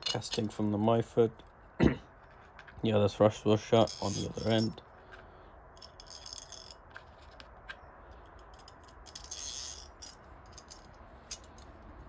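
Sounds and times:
small metallic clicks and clinks: 5.8 - 11.9.

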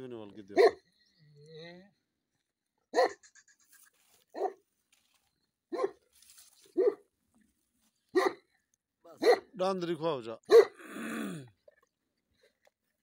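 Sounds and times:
dog barking: 0.5 - 0.9, 2.9 - 3.2, 4.3 - 4.6, 5.7 - 6.0, 6.8 - 7.1, 8.1 - 8.5, 9.2 - 9.6, 10.5 - 10.8.

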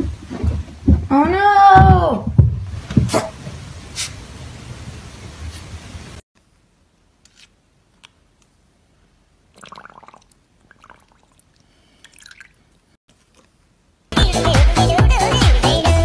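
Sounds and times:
electronic dance music: 14.2 - 16.0.

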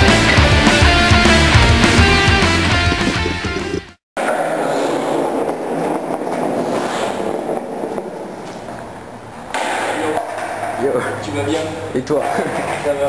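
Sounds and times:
heavy rock music: 0.0 - 4.0.

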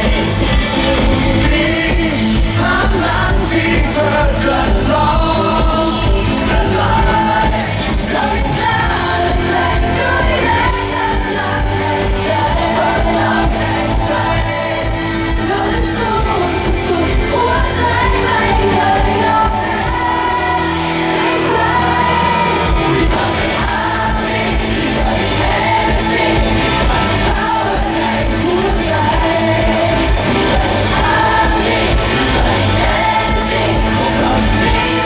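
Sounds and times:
live pop song with singers: 0.0 - 35.0.

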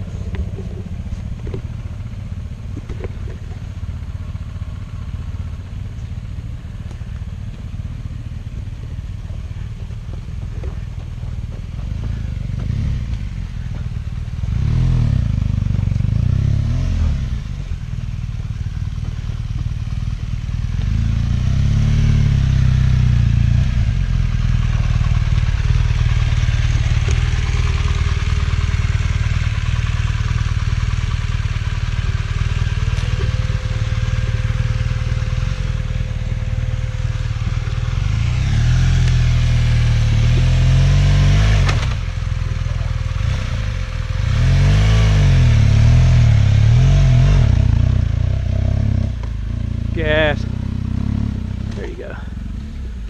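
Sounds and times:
off-road motorcycle engine revving: 0.0 - 53.0.

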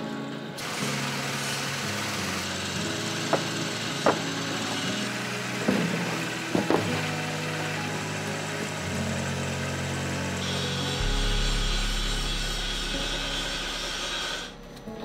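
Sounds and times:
factory machinery humming: 0.0 - 15.0
sharp metallic knocks: 11.0 - 14.6.

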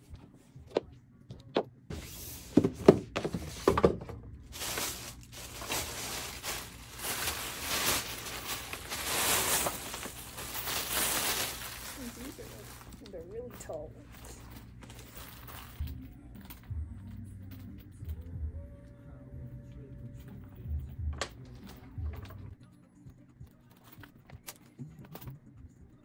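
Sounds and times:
plastic wrapping crinkling: 4.5 - 15.7.

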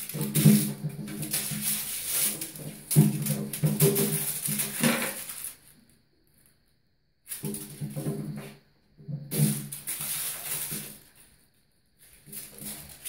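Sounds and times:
kittens' paws scrabbling on tub: 0.0 - 5.7, 7.3 - 11.3, 12.0 - 13.0
crinkle ball skittering in bathtub: 0.0 - 6.0.

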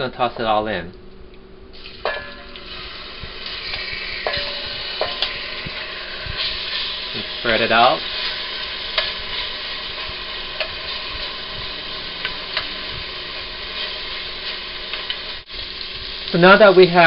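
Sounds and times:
chicken sizzling in hot oil: 1.8 - 17.0
wooden spoon scraping and tapping pot: 3.7 - 6.8.

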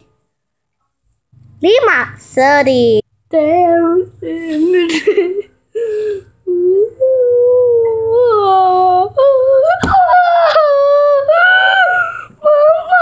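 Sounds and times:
girl wailing and whimpering: 3.9 - 13.0.

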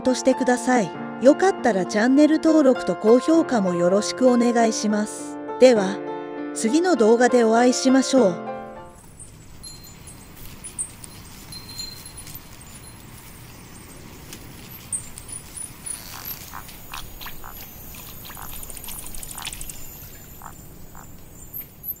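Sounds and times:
frogs croaking: 9.0 - 22.0
faint high chirps: 14.8 - 22.0.

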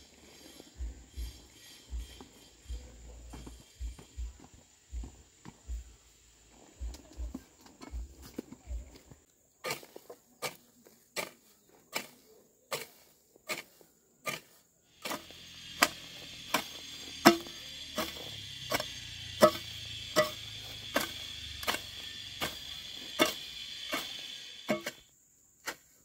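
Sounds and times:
steady high hum: 15.0 - 25.1
wood being chopped: 15.8 - 20.4.

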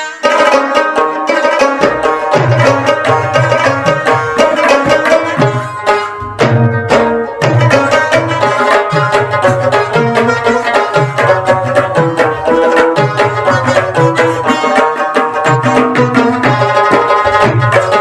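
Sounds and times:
hand drums: 0.1 - 18.0.

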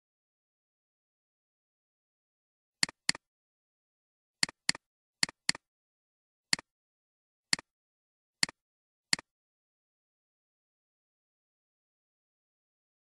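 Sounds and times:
computer mouse clicks: 2.8 - 3.3, 4.4 - 5.7, 8.4 - 9.3.

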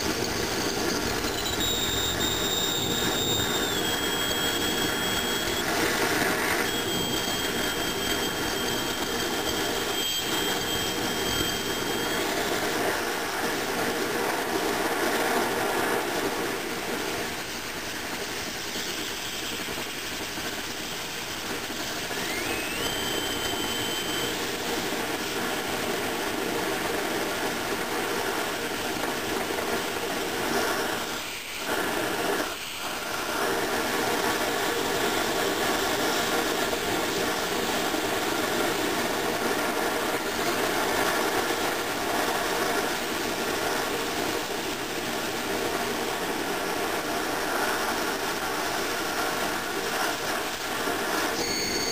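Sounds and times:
thin high whistle: 0.0 - 13.5, 18.4 - 25.4, 51.2 - 51.9
oil burner rushing: 0.0 - 51.9.

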